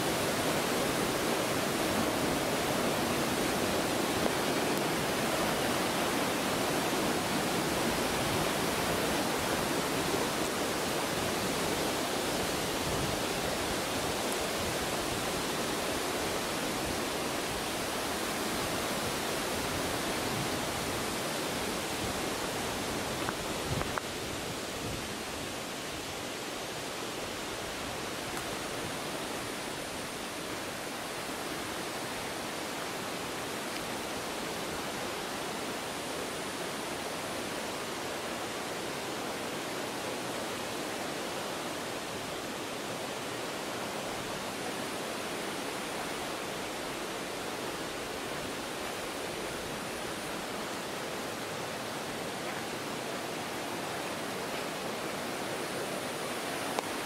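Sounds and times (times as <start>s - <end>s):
stream water rushing: 0.0s - 57.0s.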